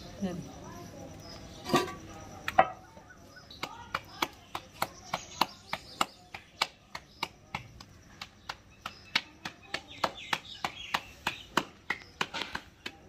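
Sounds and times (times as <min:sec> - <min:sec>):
hands slapping dough: 0:03.5 - 0:13.0.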